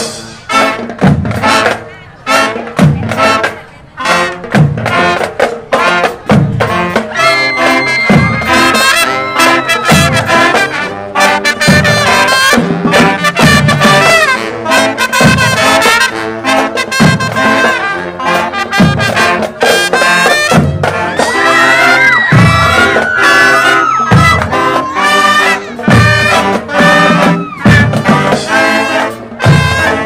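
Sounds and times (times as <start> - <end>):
marching band playing: 0.0 - 30.0
low drum beat: 6.1 - 10.8.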